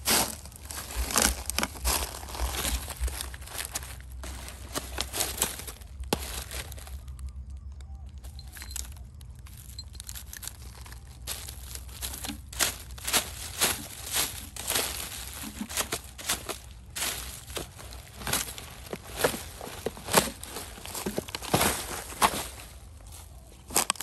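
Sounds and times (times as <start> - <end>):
trash rustling and crinkling: 0.0 - 24.0
stick raking through trash: 10.8 - 23.0.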